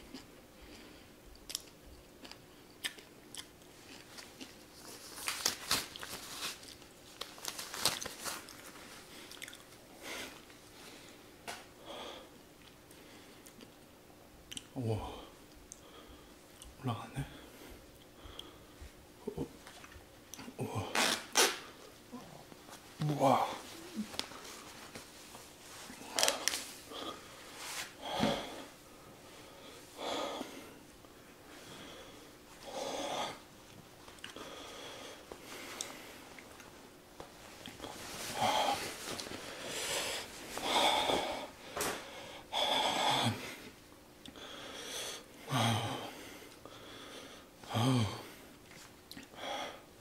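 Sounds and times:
man breathing hard: 10.0 - 13.4, 26.0 - 33.4, 34.4 - 36.2, 38.2 - 43.8, 44.4 - 48.5, 49.3 - 49.9.

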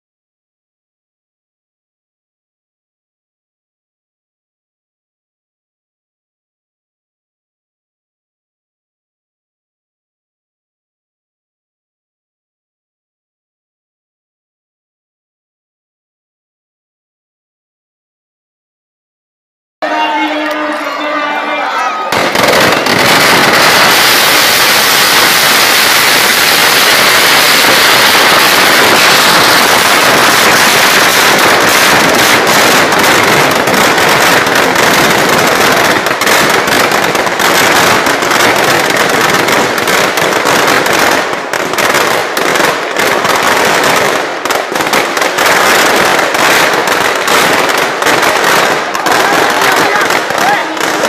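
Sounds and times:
firecrackers crackling and banging: 19.8 - 51.0.

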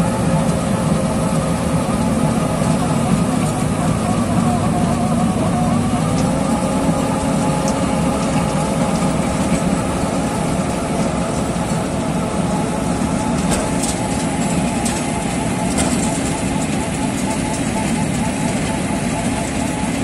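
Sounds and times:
cutter drum grinding asphalt: 0.0 - 20.0
diesel engine droning: 0.0 - 20.0.

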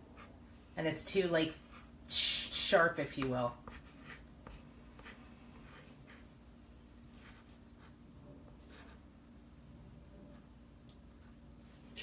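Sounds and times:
chalk scratching on chalkboard: 3.2 - 6.3.

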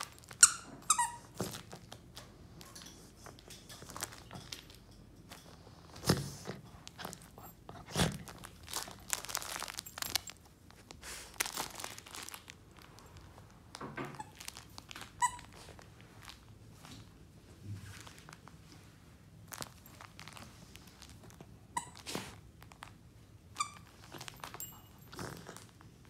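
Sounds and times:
dog chewing toy: 0.0 - 13.4, 14.1 - 15.9, 23.5 - 26.0
squeaky toy squeak: 0.3 - 1.4, 15.2 - 15.6.

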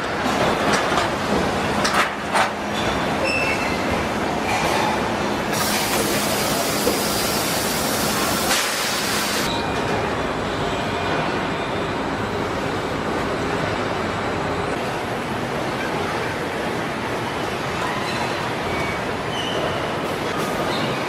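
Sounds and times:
factory machinery din: 0.0 - 15.6
loud even hiss: 5.5 - 9.5.

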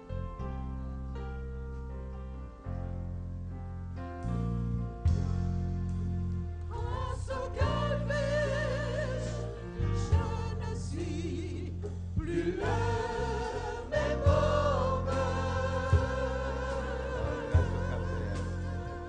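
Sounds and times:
bass line: 0.0 - 19.0
gospel choir singing: 6.6 - 19.0
sharp drum beats: 11.8 - 16.4, 17.4 - 18.7.

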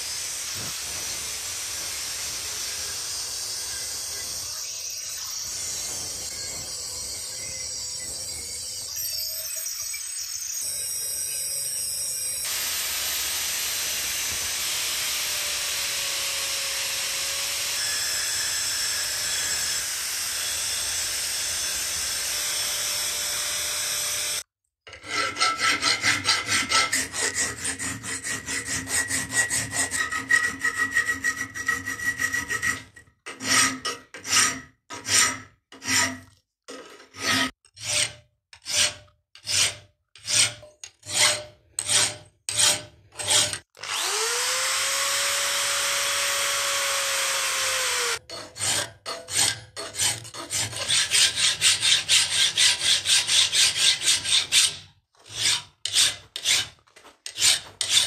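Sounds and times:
drill with grinding stone: 0.0 - 58.0
hand file strokes on metal: 5.4 - 8.4, 24.9 - 36.3, 37.1 - 44.2, 48.2 - 58.0
hand sawing ringing metal: 24.9 - 36.2, 48.2 - 58.0.

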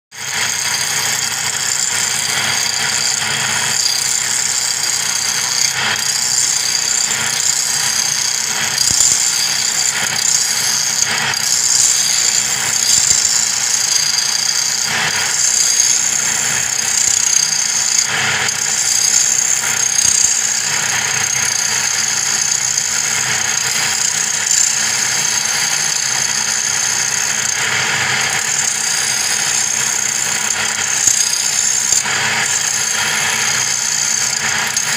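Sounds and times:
wood lathe whining: 0.1 - 34.9
chisel scraping spinning wood: 0.2 - 34.9.

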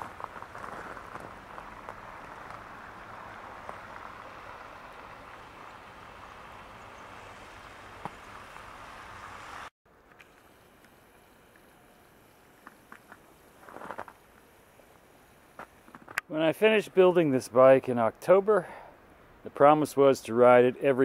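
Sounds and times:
car tyres hissing on wet road: 0.0 - 9.7.

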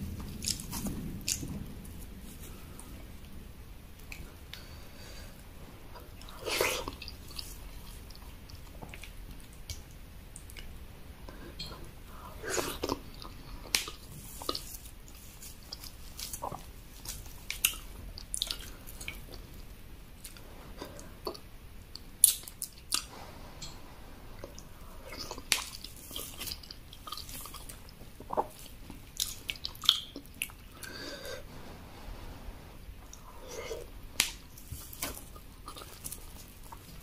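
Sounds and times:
wet mouth chewing: 20.2 - 23.8, 24.4 - 31.2, 33.0 - 37.0.

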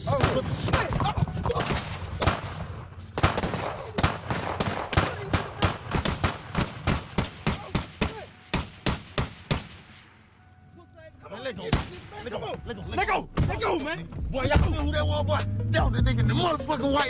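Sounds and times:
gunshots: 0.0 - 10.2, 11.7 - 12.3.

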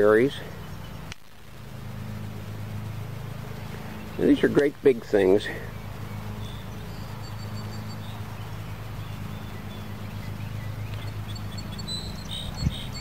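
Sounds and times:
low mechanical drone: 0.0 - 13.0
bird chirps: 0.4 - 1.1, 5.6 - 13.0.

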